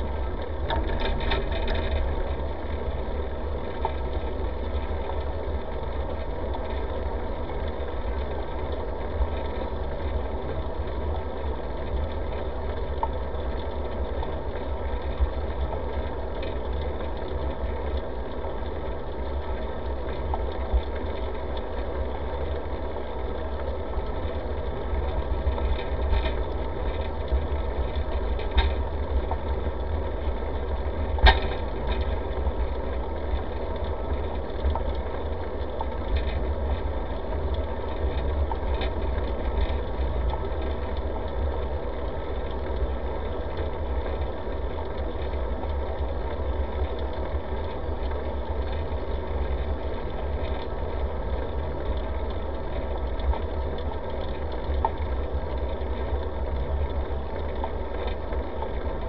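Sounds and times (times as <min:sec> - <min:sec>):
sharp clicks from bumps: 0:00.0 - 0:22.8, 0:23.4 - 0:59.0
bicycle rumbling on pavement: 0:00.0 - 0:59.0.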